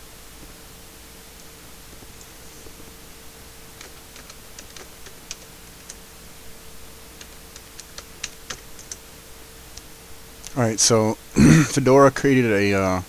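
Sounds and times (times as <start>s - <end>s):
faint steady hum: 0.0s - 13.0s
computer keyboard typing: 3.7s - 6.0s, 7.2s - 9.0s.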